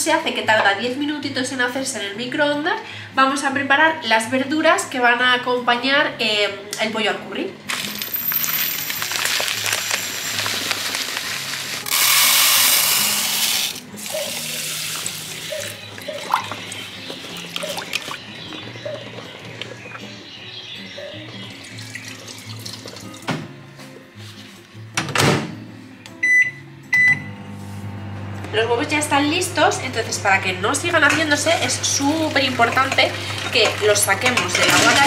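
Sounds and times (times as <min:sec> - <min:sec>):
background music: 0:00.0 - 0:27.1, 0:28.5 - 0:35.0
tap water running through rice: 0:07.7 - 0:18.2, 0:21.7 - 0:23.2.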